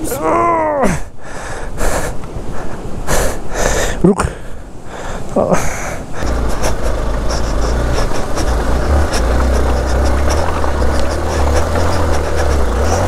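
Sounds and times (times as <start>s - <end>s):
motorcycle engine rumbling: 6.1s - 13.0s.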